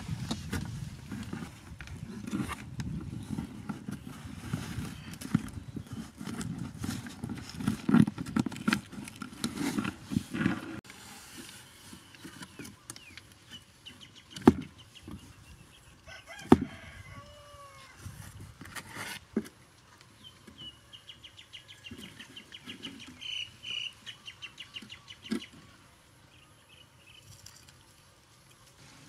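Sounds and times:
bird calls: 11.6 - 16.3, 20.2 - 27.4.

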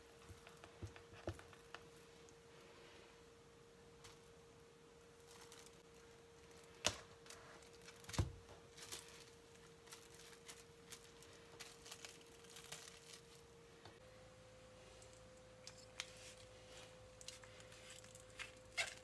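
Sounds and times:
faint steady hum: 0.0 - 19.0
cling film crinkling: 5.2 - 13.5.

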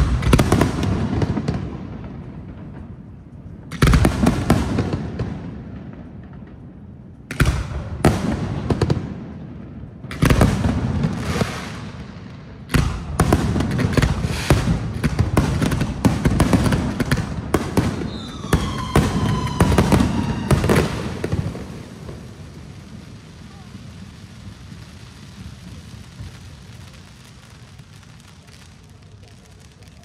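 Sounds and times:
fireworks bursting with loud bangs: 0.0 - 30.0
firework whistles gliding down: 14.2 - 14.6, 17.9 - 30.0.

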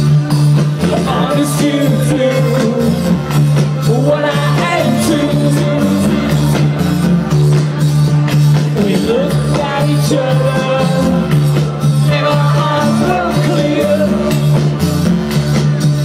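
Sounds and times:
electro-pop band through pa: 0.0 - 16.0
person singing: 0.8 - 6.8, 8.6 - 14.8.

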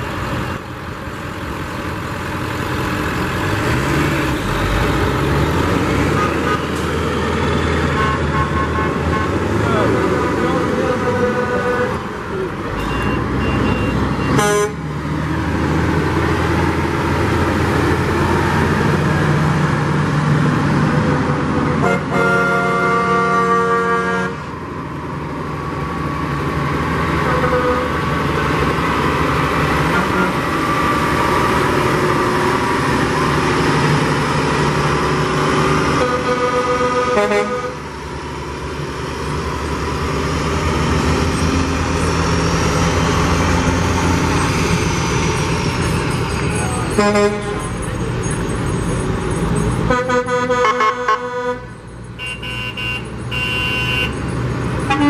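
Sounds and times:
diesel truck engine rumble: 0.0 - 55.0
vehicle horn blasts: 7.9 - 9.4, 14.3 - 14.8, 21.8 - 24.4, 27.2 - 27.9, 36.0 - 37.8, 47.0 - 47.6, 49.9 - 54.2.

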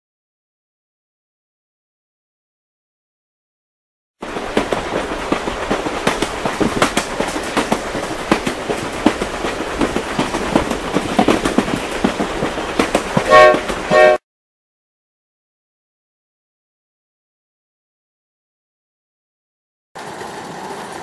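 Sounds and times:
steam train clattering and hissing: 4.2 - 14.2
train whistle blasts: 13.3 - 14.2.

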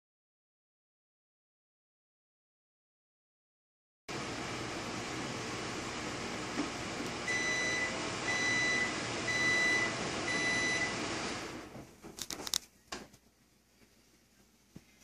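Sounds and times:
electronic appliance beeps: 7.2 - 11.2.

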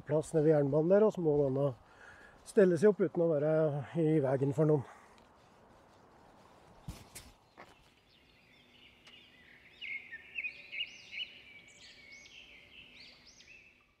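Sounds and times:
birdlike chirping: 6.5 - 14.0.

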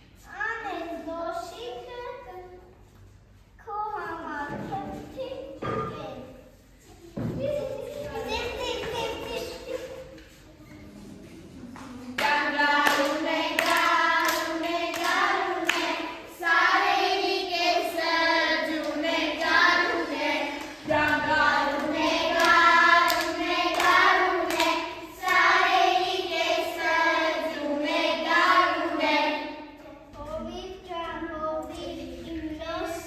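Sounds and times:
children singing together: 12.1 - 29.8.

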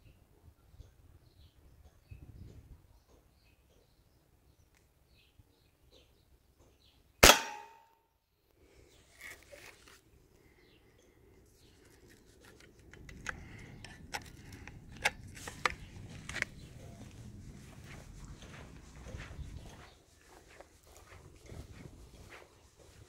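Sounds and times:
suppressed rifle shot: 7.2 - 7.8.

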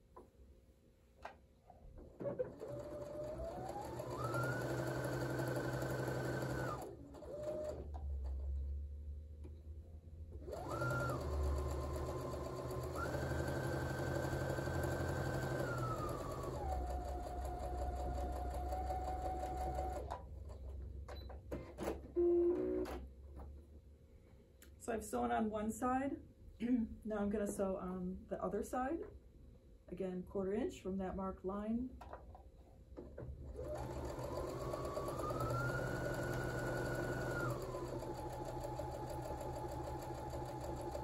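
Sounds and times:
sewing machine motor whine: 2.2 - 7.9, 10.5 - 20.2, 33.5 - 41.0.

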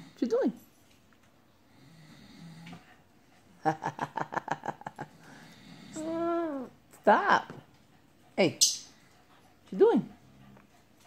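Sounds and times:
parrot low grumble: 5.3 - 6.7.

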